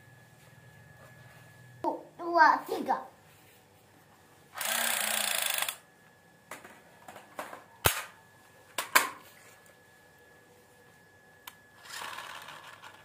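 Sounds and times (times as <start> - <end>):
toy gun rapid rattle: 4.6 - 5.8, 11.8 - 13.0.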